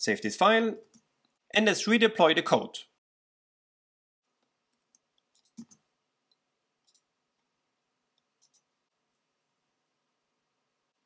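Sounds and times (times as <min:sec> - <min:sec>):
faint computer clicks: 0:04.8 - 0:07.1, 0:08.2 - 0:08.7.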